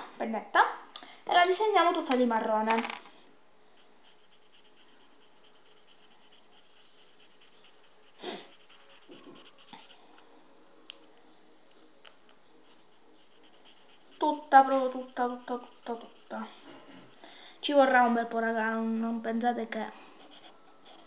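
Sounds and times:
marker scratching on pasta: 3.8 - 10.2, 12.6 - 17.4, 20.2 - 21.0.

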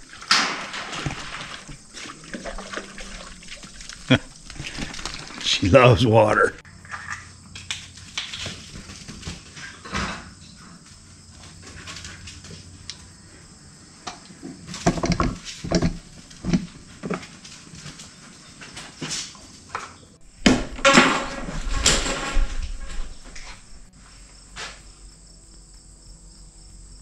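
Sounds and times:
tools clattering: 20.4 - 23.9.

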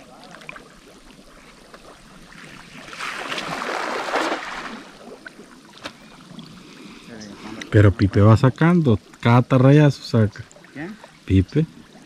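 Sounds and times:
water splashing: 0.0 - 8.3.

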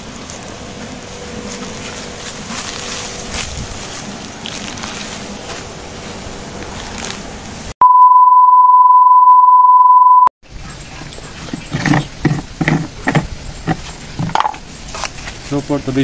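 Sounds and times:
outdoor background noise: 0.0 - 7.8, 10.4 - 16.0
steady test tone beep: 7.8 - 10.3.

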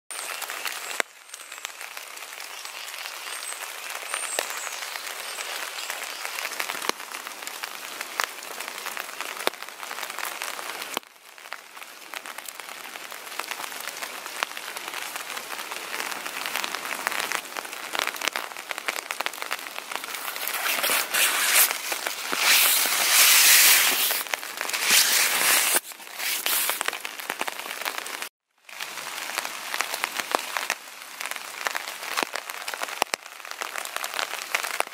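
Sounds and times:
footsteps crunching through dry leaves: 20.0 - 27.0.

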